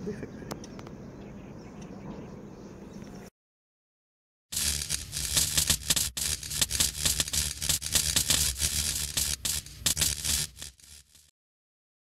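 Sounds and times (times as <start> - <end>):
crackling fizzing sparks: 4.5 - 11.3
hiss: 4.6 - 11.2.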